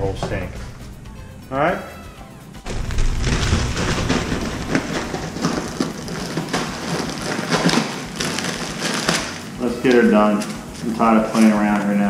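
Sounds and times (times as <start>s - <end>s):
plastic packaging crinkling: 2.7s - 12.0s.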